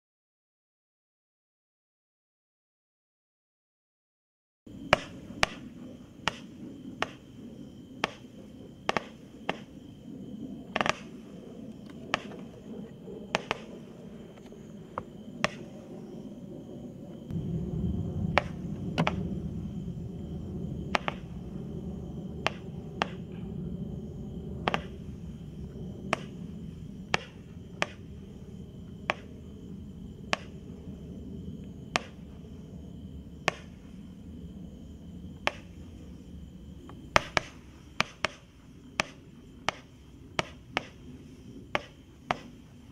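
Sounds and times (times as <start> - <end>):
low rumble: 4.7 - 37.9.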